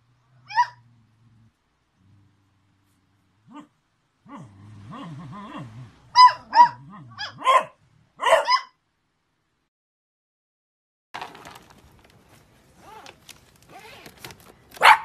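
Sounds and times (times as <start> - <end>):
dog barking high-pitched: 0.4 - 0.8, 6.1 - 8.8, 14.8 - 15.0
dog growling: 0.6 - 7.4.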